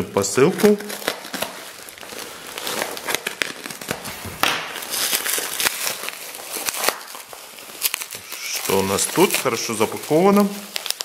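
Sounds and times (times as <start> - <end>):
bubble wrap crinkling: 0.0 - 11.0
plastic mailer tearing: 0.2 - 11.0.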